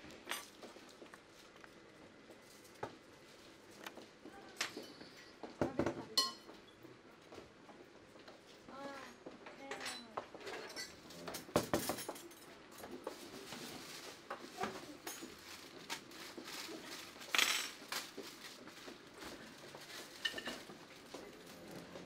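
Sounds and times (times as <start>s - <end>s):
plates and pots clattering: 5.8s - 6.6s, 9.8s - 13.0s, 20.0s - 20.8s.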